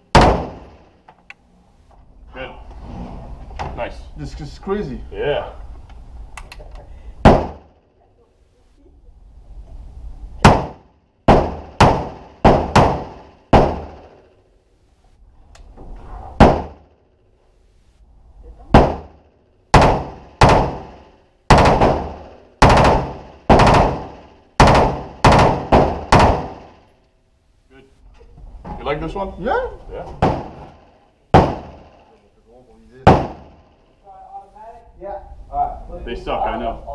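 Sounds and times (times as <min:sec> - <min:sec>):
rifle shots: 0:00.1 - 0:00.9, 0:07.2 - 0:07.7, 0:10.4 - 0:14.2, 0:18.7 - 0:26.8, 0:31.3 - 0:32.0.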